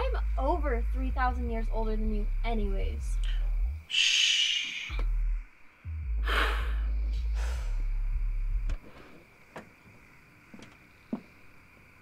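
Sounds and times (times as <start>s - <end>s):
deep low rumble: 0.0s - 3.9s, 4.9s - 8.8s
man sighing: 6.1s - 7.8s.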